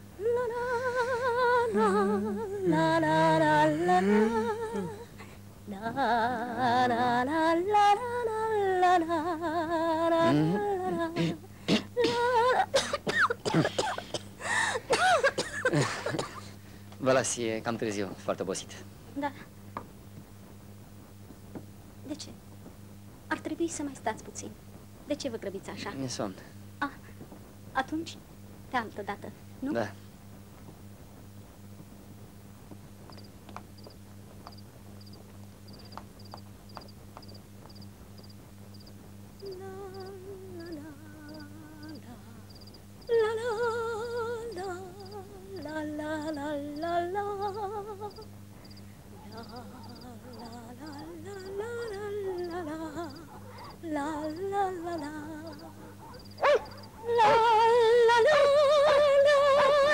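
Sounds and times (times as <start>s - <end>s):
crickets chirping: 0.0s - 59.9s
low mains hum: 0.0s - 59.9s
woman humming a tune: 0.2s - 12.8s, 39.4s - 48.3s, 49.2s - 55.9s, 57.0s - 59.9s
dog howling: 55.6s - 59.9s
dog yelp: 55.7s - 57.4s.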